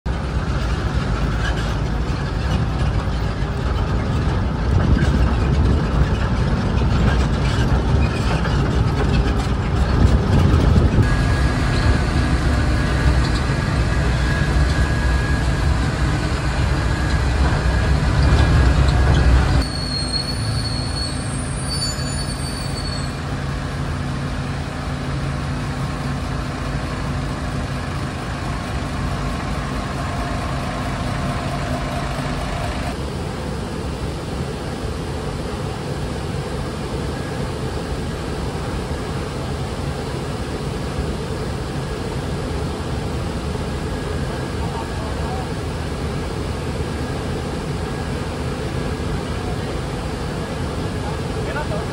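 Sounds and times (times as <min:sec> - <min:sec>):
heavy low rumbling: 0:00.1 - 0:19.6, 0:23.1 - 0:35.5
diesel locomotive idling: 0:00.1 - 0:51.9.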